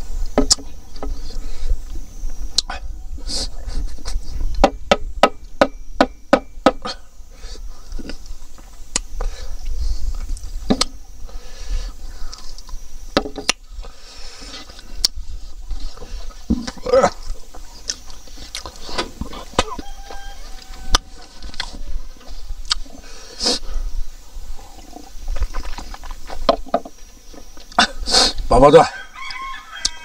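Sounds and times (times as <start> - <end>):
wet chewing and lip smacking: 16.7 - 19.8, 22.6 - 22.9.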